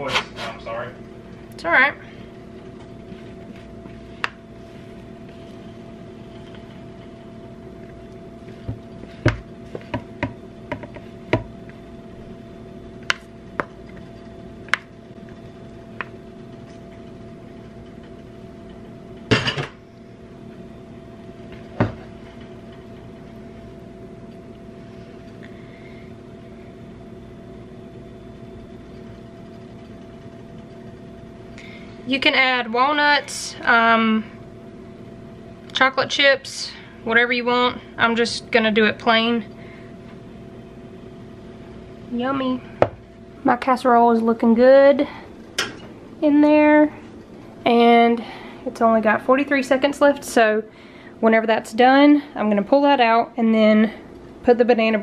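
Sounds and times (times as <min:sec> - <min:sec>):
low hum: 0:00.8 - 0:55.0.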